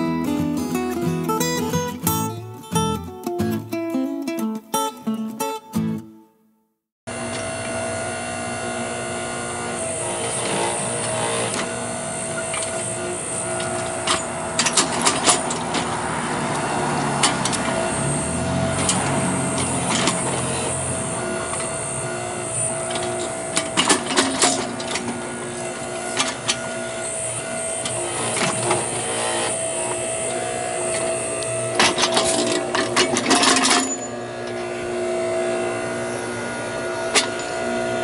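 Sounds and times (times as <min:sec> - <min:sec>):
hydraulic motor humming: 0:07.1 - 0:38.0
car driving by: 0:14.4 - 0:22.6
sharp metal clanks: 0:22.5 - 0:34.7, 0:37.1 - 0:37.7.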